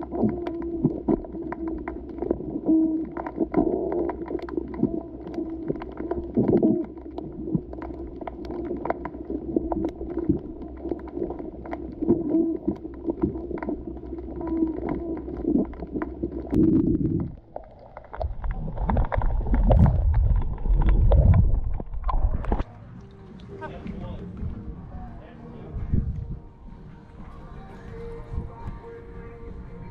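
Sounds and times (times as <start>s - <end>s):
underwater clicks and knocks: 0.0s - 22.7s
muffled underwater hum: 0.0s - 29.9s.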